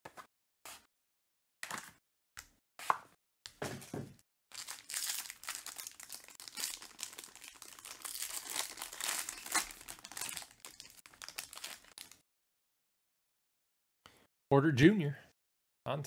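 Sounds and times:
foil wrapper crinkling: 0:04.5 - 0:12.2.

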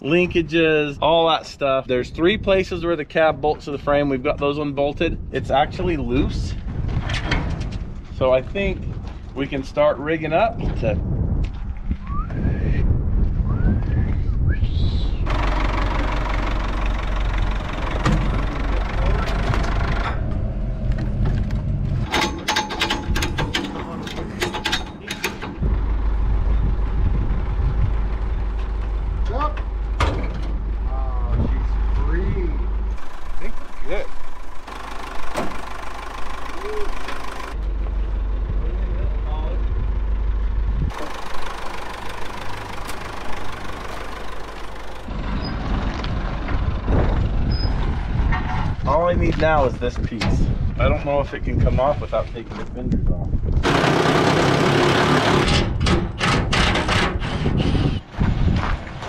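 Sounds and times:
engine idling: 0:15.2 - 0:47.5, 0:53.6 - 0:55.8.

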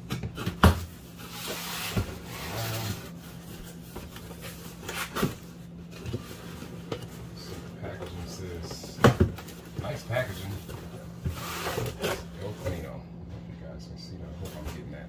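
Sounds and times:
cardboard rustling and sliding: 0:01.1 - 0:08.4, 0:09.8 - 0:12.8.

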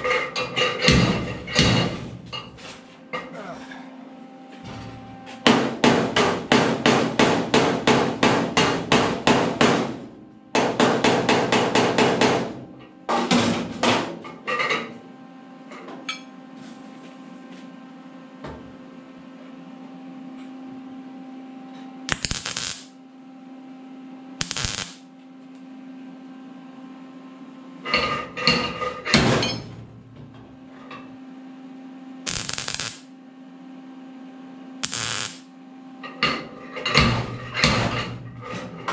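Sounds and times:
low steady hum: 0:00.0 - 0:06.6
hammer striking sheet metal: 0:00.8 - 0:02.1, 0:04.8 - 0:14.2, 0:27.9 - 0:29.8, 0:36.2 - 0:38.7
welder bursts: 0:22.1 - 0:23.0, 0:24.4 - 0:25.0, 0:32.3 - 0:33.1, 0:34.8 - 0:35.5.

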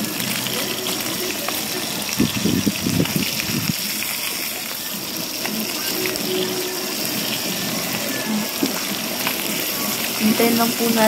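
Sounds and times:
fish sizzling in hot oil: 0:00.0 - 0:11.0.

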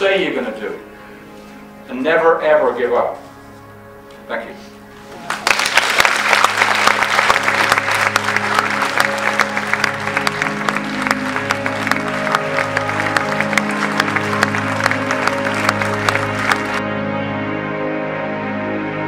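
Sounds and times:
music with held notes: 0:00.0 - 0:19.0
audience applauding: 0:05.1 - 0:16.8.

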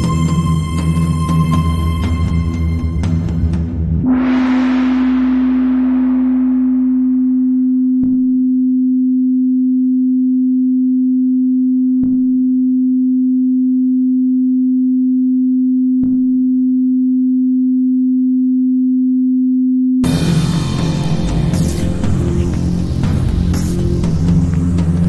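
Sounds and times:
loud music: 0:00.0 - 0:07.4, 0:20.0 - 0:25.0
steady electronic tone: 0:04.0 - 0:08.0, 0:20.0 - 0:25.0.

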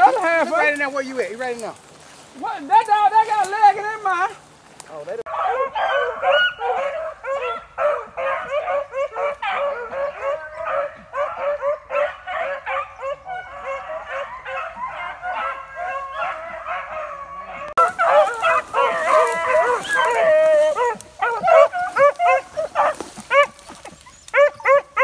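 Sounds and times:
dogs baying and barking: 0:05.3 - 0:25.0.

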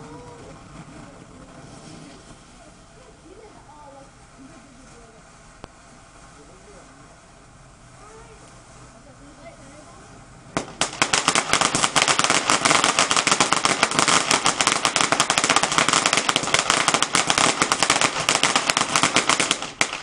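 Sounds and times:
firecracker cracks: 0:10.5 - 0:20.0.

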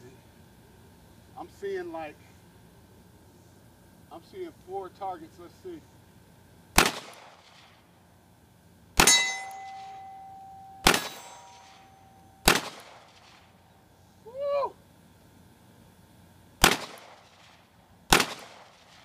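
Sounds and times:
pistol shots: 0:06.8 - 0:07.7, 0:09.0 - 0:10.2, 0:10.8 - 0:13.4, 0:16.6 - 0:19.0
steel plate target ringing: 0:09.0 - 0:12.6.

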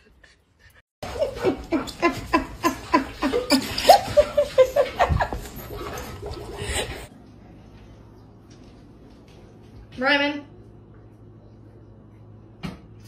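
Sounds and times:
person laughing hard: 0:01.0 - 0:05.5.

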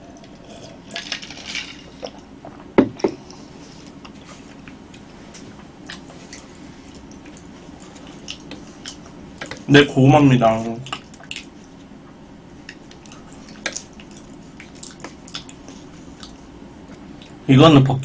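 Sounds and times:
glass knocking on wooden table: 0:02.8 - 0:03.2.

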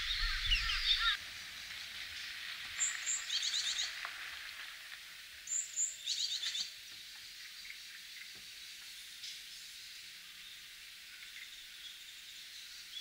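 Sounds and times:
bird calling with chattering notes: 0:00.0 - 0:01.2.

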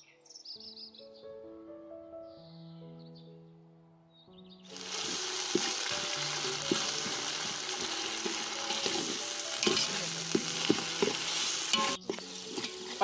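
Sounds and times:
onions sizzling in hot oil: 0:04.7 - 0:13.0
steel ladle scraping a pot: 0:04.9 - 0:13.0.

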